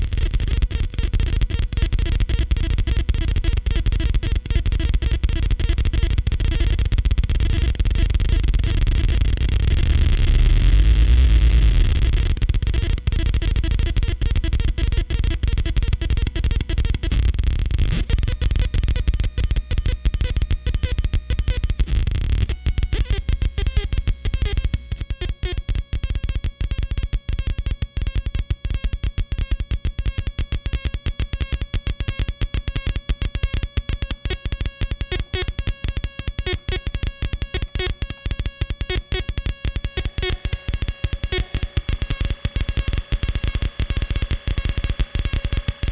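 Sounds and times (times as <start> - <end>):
distorted stuttering oscillator drone: 0.0 - 31.0, 33.5 - 45.9
heavy bass: 3.9 - 26.0, 39.8 - 45.9
steady high-pitched tones: 38.8 - 45.9.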